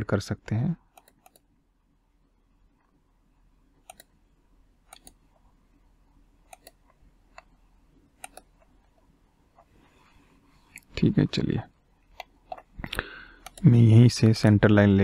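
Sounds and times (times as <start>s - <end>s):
computer mouse button clicks: 3.8s - 4.1s, 6.5s - 7.5s, 8.2s - 8.5s.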